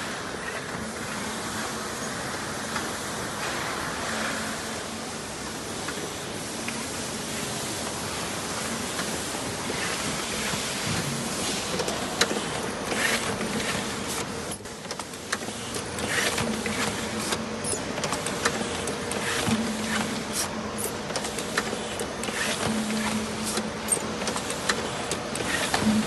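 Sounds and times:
machine clicks: 11.7 - 26.0.

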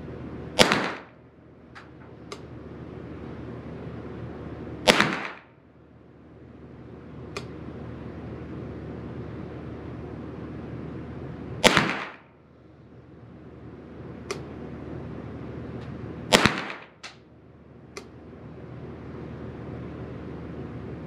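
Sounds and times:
rifle shots echoing: 0.6 - 1.2, 4.8 - 5.5, 11.6 - 12.3, 16.3 - 17.1.

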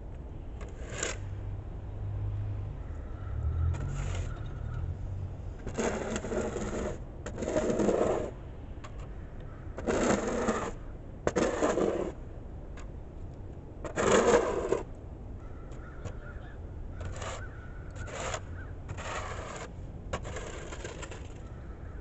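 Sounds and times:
snow shovel scraping concrete: 0.6 - 1.2, 3.8 - 4.4, 5.6 - 8.4, 9.8 - 12.2, 13.9 - 14.9, 17.0 - 17.4, 18.0 - 21.4.

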